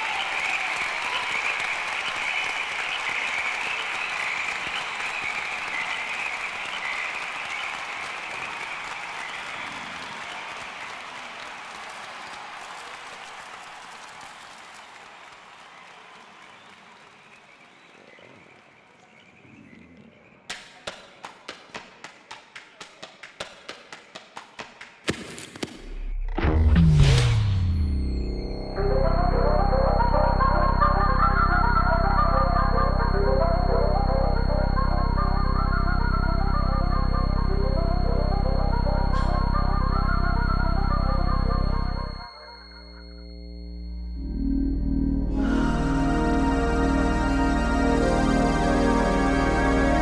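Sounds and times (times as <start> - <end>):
crowd applauding: 0.0 - 19.5, 20.5 - 25.1
running footsteps on a track: 20.5 - 25.8.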